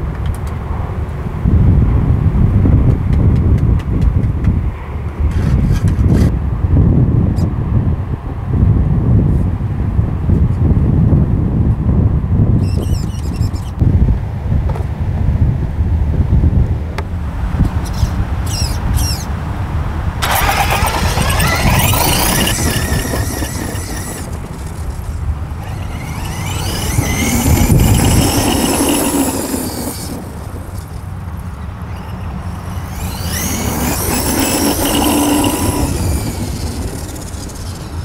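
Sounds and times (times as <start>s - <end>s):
wind rumble on microphone: 0.0s - 38.0s
electric motor whining: 20.2s - 38.0s.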